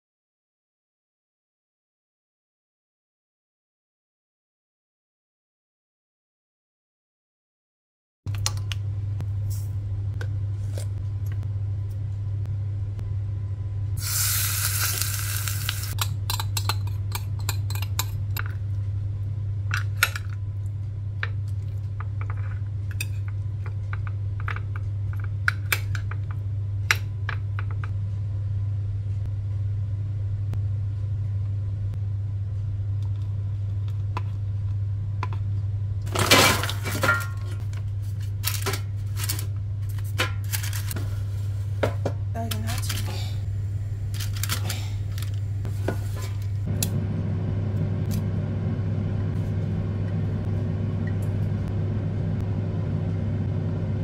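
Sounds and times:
steady low hum: 8.3 - 54.0
utensils clinking on ceramic bowl: 16.0 - 18.3.

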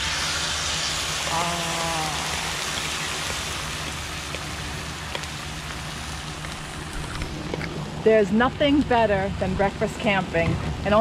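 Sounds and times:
eggs sizzling on griddle: 0.0 - 7.7.

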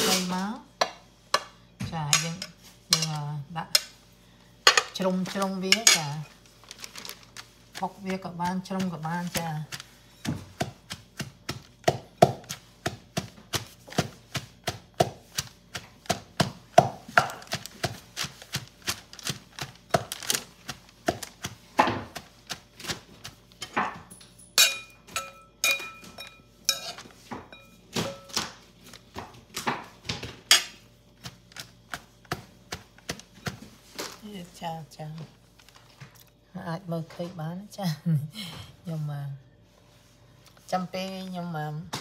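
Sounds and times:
pestle pounding in metal mortar: 7.8 - 28.6.

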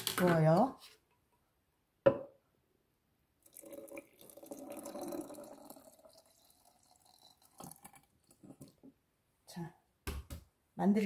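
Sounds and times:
liquid pouring into glass jar: 3.4 - 8.8.

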